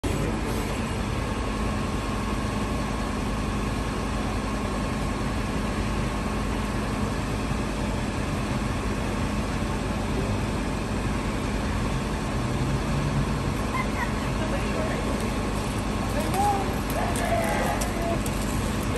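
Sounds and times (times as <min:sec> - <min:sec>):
truck engine idling: 0:00.0 - 0:18.9.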